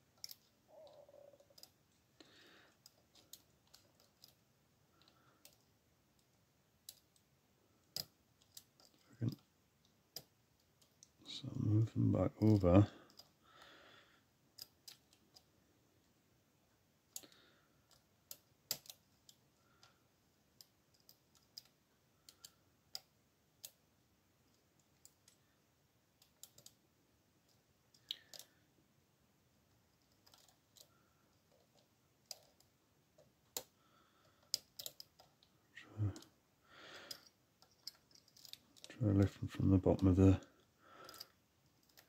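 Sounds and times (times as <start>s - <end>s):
metallic clicks of lock picking: 37.1s - 38.9s.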